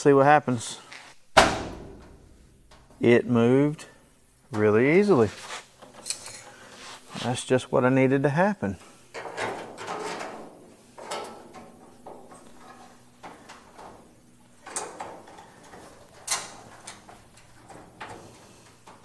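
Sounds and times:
metal clicks and scrapes: 0:05.8 - 0:06.6.

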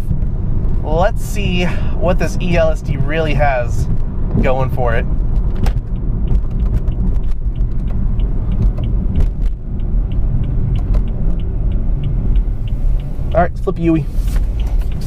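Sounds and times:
car engine and road rumble: 0:00.0 - 0:15.0
faint light ticks: 0:05.9 - 0:15.0.

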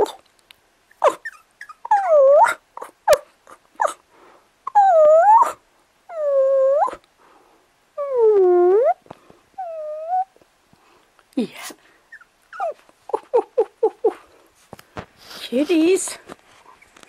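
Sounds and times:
puppies whining: 0:00.0 - 0:00.2, 0:00.9 - 0:04.0, 0:04.7 - 0:07.0, 0:09.6 - 0:10.4, 0:12.1 - 0:14.3
puppies yipping: 0:00.9 - 0:04.0, 0:12.1 - 0:14.2.

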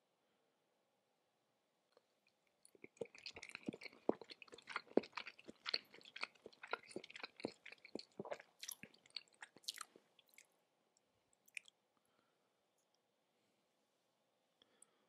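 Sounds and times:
wet chewing mouth clicks: 0:02.6 - 0:10.5, 0:11.5 - 0:11.7.

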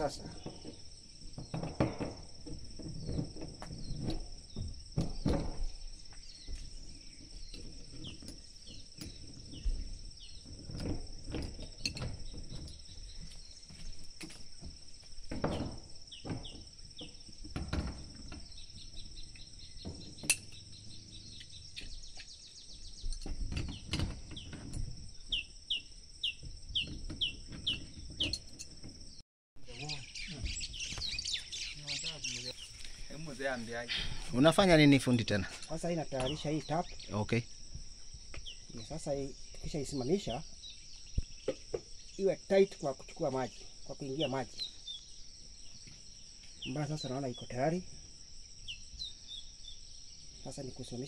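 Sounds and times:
bird chirps: 0:18.2 - 0:28.6, 0:29.7 - 0:37.4, 0:38.3 - 0:47.8.

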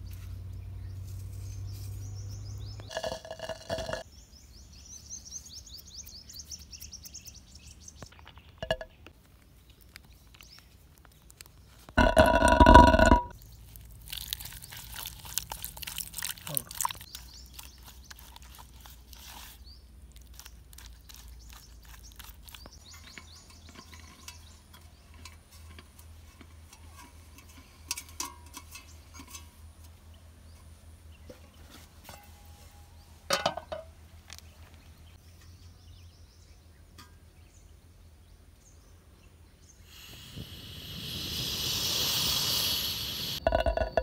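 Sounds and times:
metal camp stove clinks: 0:22.9 - 0:29.6, 0:33.3 - 0:33.9
gas hissing from burner: 0:39.9 - 0:43.4.

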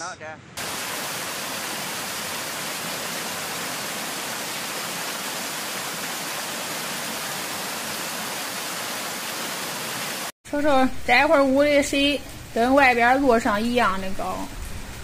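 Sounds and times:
river rushing: 0:00.6 - 0:10.3.

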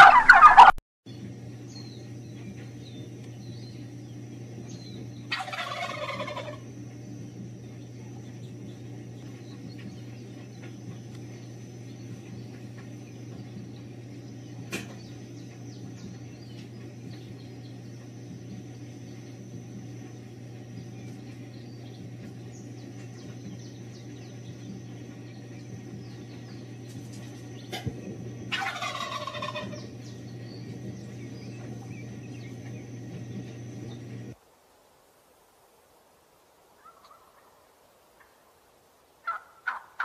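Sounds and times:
wild turkey gobbling: 0:00.0 - 0:00.8, 0:05.2 - 0:06.7, 0:25.0 - 0:30.4, 0:36.8 - 0:37.6, 0:38.2 - 0:38.4, 0:39.2 - 0:40.0
steady low hum: 0:00.0 - 0:34.4.

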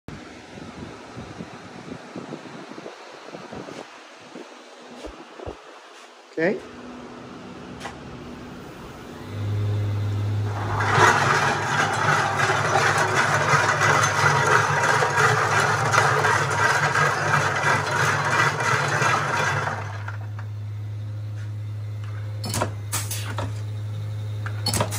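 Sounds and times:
electric machine hum: 0:06.7 - 0:24.6
corks clattering in rotating drum: 0:10.5 - 0:19.9, 0:24.6 - 0:24.9.

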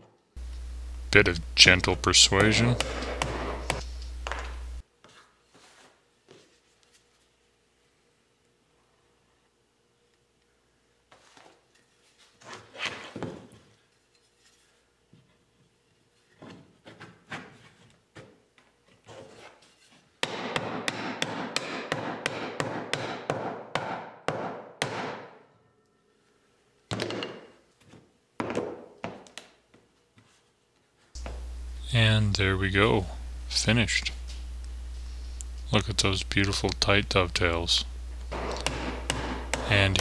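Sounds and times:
wooden mallet striking wood: 0:38.3 - 0:40.0.

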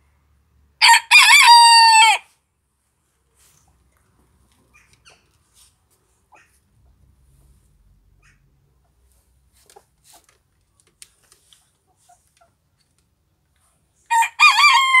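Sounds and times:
rooster crowing: 0:00.8 - 0:02.3, 0:14.1 - 0:15.0
faint clicks and rustles: 0:03.1 - 0:07.8, 0:08.9 - 0:14.0.

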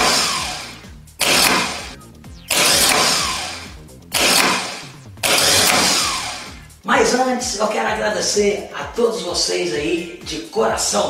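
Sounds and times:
starter motor spinning and whining: 0:00.0 - 0:06.8.

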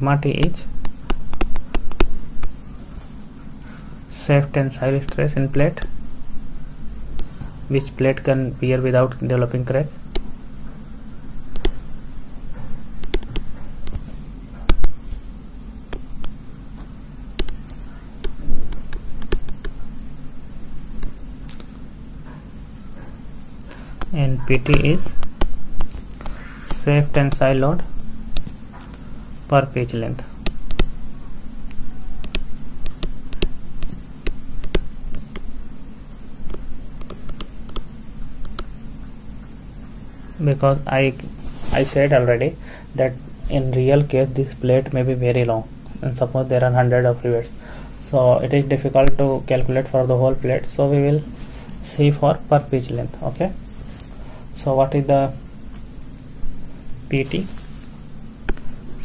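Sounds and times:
steady low hum: 0:00.0 - 0:59.0
pen tapping on whiteboard: 0:00.8 - 0:02.2, 0:11.5 - 0:11.8, 0:13.0 - 0:14.0, 0:17.4 - 0:19.8, 0:24.7 - 0:25.9, 0:30.4 - 0:30.9, 0:32.2 - 0:35.5, 0:36.5 - 0:38.7.

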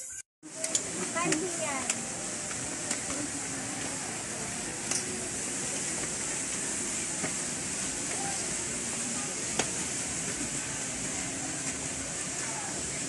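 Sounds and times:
steady outdoor hiss: 0:00.4 - 0:13.0
faint distant voices: 0:00.5 - 0:13.0.

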